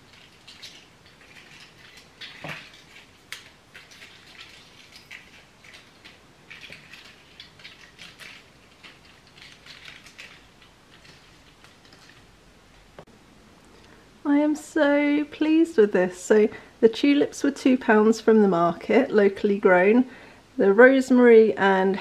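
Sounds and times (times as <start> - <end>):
rustling and crackling of stems: 0.0 - 13.1.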